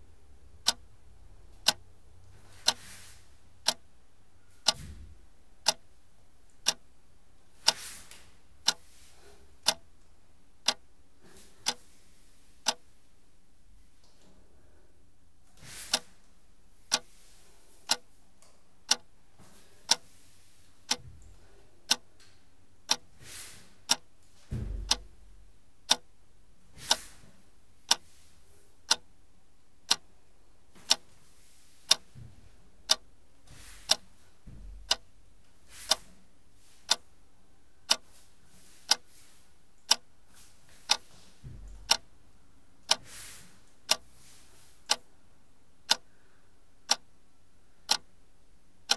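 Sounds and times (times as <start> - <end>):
clock ticking: 0.6 - 0.9, 1.6 - 1.9, 2.5 - 2.8, 3.6 - 3.9, 4.6 - 4.8, 5.6 - 5.9, 6.6 - 6.8, 7.6 - 7.8, 8.6 - 8.8, 9.6 - 9.8, 10.6 - 10.9, 11.6 - 11.8, 12.6 - 12.8, 17.9 - 18.1, 18.9 - 19.1, 20.9 - 21.1, 21.9 - 22.1, 22.8 - 23.1, 23.9 - 24.1, 24.8 - 25.2, 25.9 - 26.1, 26.8 - 27.0, 28.9 - 29.1, 29.9 - 30.1, 30.9 - 31.1, 31.9 - 32.1, 32.8 - 33.1, 33.8 - 34.1, 34.8 - 35.1, 35.8 - 36.0, 36.9 - 37.1, 37.9 - 38.1, 39.8 - 40.1, 41.7 - 42.1, 42.9 - 43.1, 43.8 - 44.1, 44.9 - 45.1, 45.9 - 46.1, 46.9 - 47.1, 47.9 - 48.1.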